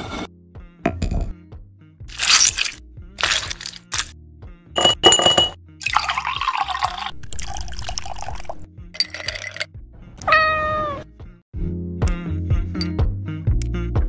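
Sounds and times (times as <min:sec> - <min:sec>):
background music: 0:00.0 - 0:14.0
liquid poured over ice: 0:02.1 - 0:04.1, 0:05.8 - 0:09.6
cat meow: 0:10.2 - 0:11.1.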